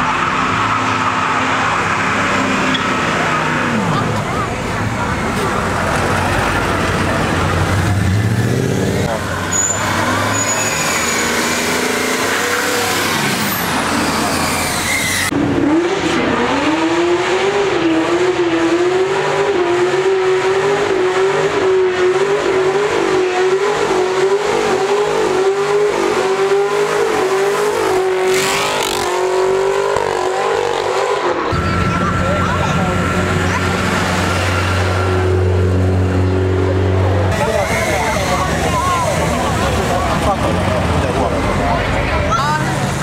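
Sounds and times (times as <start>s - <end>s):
car engine revving in burnout: 0.0s - 43.0s
tyres squealing: 9.2s - 15.3s.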